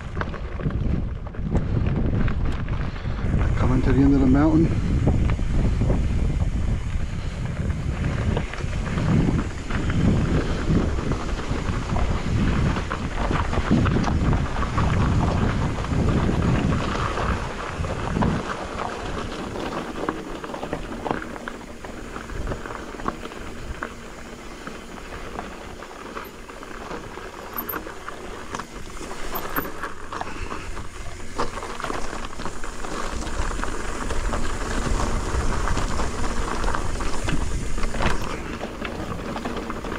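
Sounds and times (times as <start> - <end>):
bike rattling: 0.0 - 39.9
bike tyres crunching on gravel: 0.0 - 39.9
wind buffeting microphone: 0.0 - 39.9.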